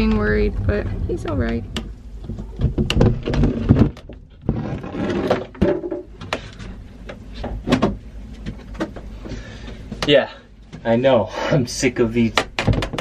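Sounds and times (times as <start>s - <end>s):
wooden board scraping: 0.0s - 6.6s.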